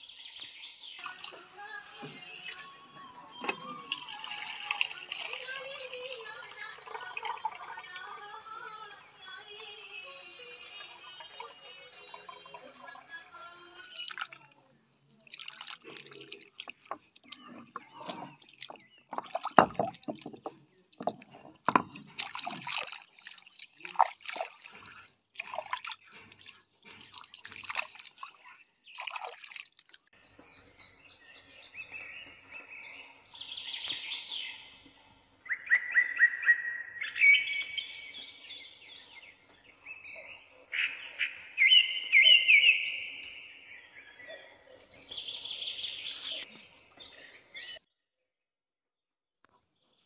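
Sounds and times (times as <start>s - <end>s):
water splashing in a bowl: 1.0s - 1.5s, 2.2s - 2.7s, 3.4s - 8.6s, 10.7s - 13.2s, 13.8s - 30.1s
birds chirping: 15.8s - 29.3s, 30.2s - 47.8s.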